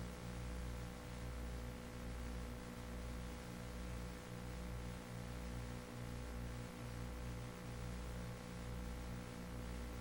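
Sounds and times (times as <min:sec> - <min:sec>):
low electrical hum with hiss: 0:00.0 - 0:10.0.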